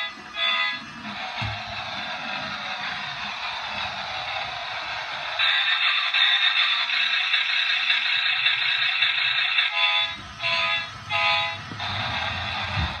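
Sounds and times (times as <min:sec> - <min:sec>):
tinny recorded engine sound: 0:00.0 - 0:13.0
electronic car horn honks: 0:09.7 - 0:11.6.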